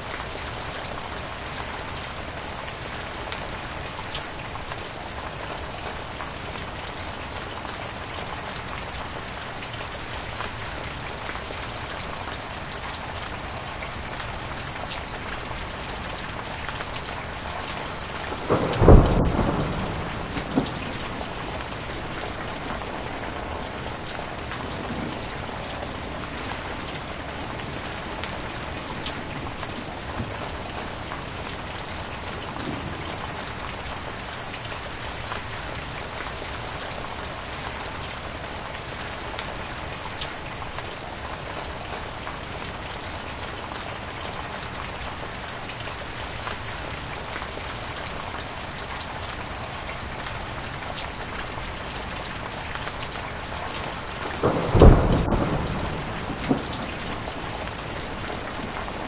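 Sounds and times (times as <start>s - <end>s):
heavy rain: 0.0s - 59.0s
thunder clap: 17.8s - 31.4s, 54.2s - 59.0s.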